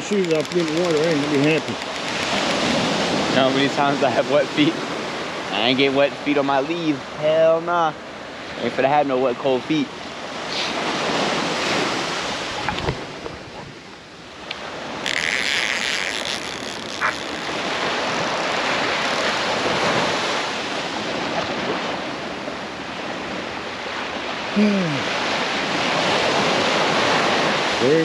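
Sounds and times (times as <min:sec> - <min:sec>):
surf breaking on beach: 0:00.0 - 0:07.7, 0:14.6 - 0:28.0
wind buffeting microphone: 0:09.9 - 0:15.1.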